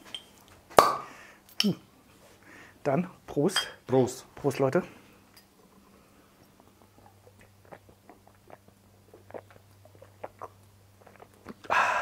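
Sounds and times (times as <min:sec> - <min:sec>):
person gulping and swallowing: 0:06.7 - 0:11.8.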